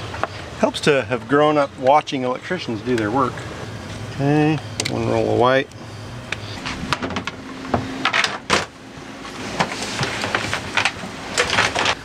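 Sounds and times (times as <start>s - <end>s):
faint steady hum: 0.0s - 12.0s
cable rustling and scraping: 9.2s - 12.0s.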